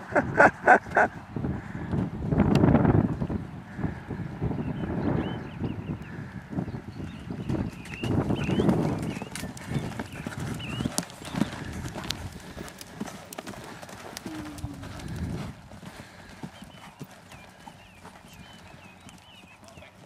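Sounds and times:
cantering hoofbeats on sand: 0:05.2 - 0:20.0.

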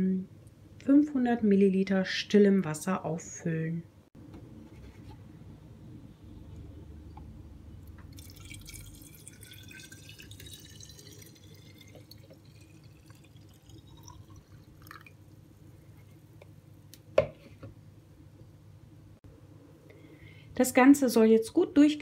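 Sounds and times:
water pouring into bottle: 0:08.1 - 0:15.4.

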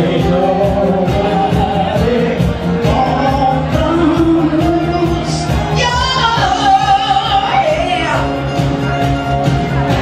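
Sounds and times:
person singing into microphone: 0:00.0 - 0:08.6
dance-pop backing track: 0:00.0 - 0:10.0.

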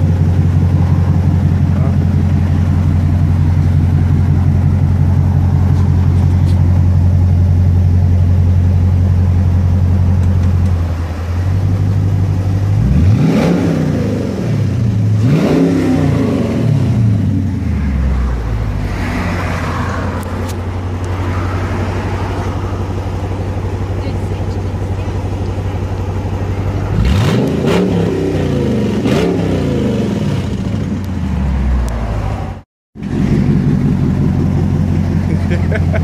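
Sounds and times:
car engine idling: 0:00.0 - 0:15.4, 0:16.9 - 0:29.1, 0:29.8 - 0:36.0
engine revving: 0:11.3 - 0:36.0.

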